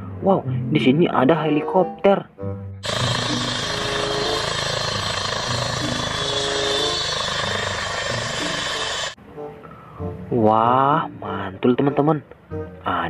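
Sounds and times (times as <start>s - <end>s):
helicopter blades beating: 2.8s - 9.2s
helicopter turbine whine: 2.8s - 9.2s.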